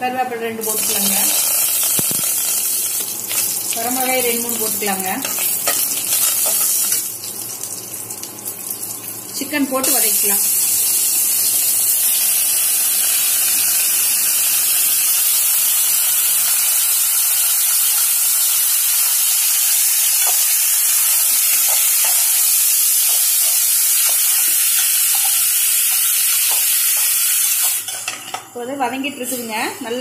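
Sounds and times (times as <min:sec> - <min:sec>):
chicken sizzling in oil: 0:00.6 - 0:28.4.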